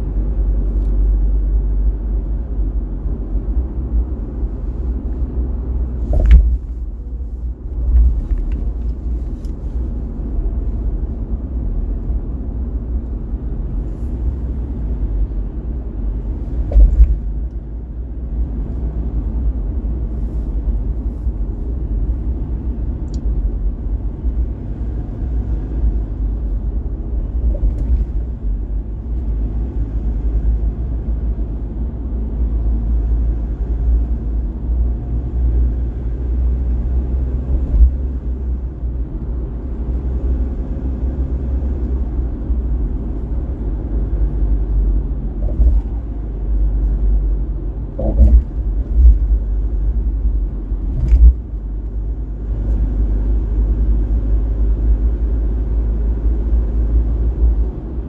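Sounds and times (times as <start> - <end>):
car driving low rumble: 0.0 - 58.0
sharp thumps: 6.0 - 6.8, 16.6 - 17.3, 47.9 - 49.3.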